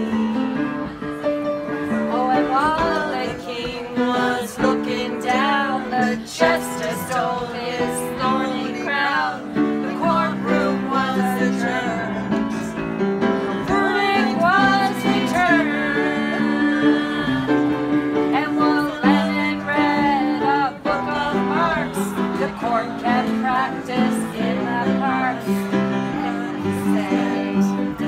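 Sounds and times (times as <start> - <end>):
voices singing: 0.0 - 28.0
instruments holding chords: 7.1 - 28.0.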